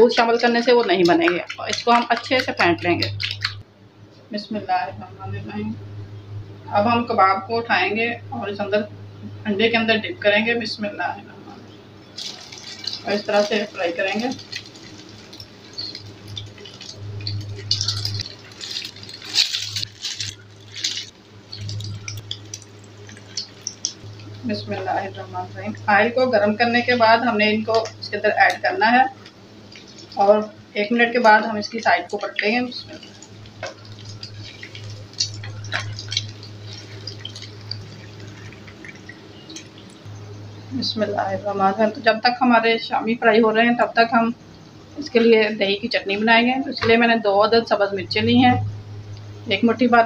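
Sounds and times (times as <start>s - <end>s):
low steady hum: 0.0s - 50.0s
oil sizzling and spitting: 12.1s - 25.2s, 27.7s - 40.1s.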